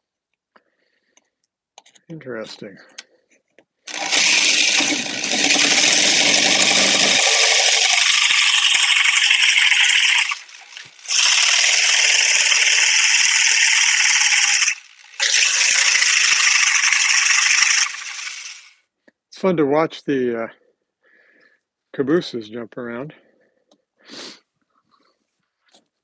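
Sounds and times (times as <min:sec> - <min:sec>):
electric saw cutting wood: 0:03.9 - 0:18.8.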